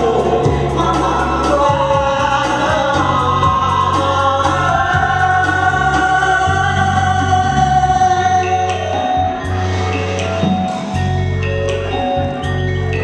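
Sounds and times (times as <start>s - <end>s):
man and woman singing duet: 0.0s - 9.4s
instrumental backing music: 0.0s - 13.0s.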